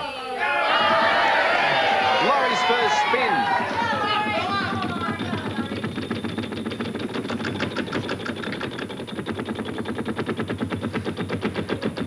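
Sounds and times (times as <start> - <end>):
prize wheel clicking while spinning: 3.1 - 11.8.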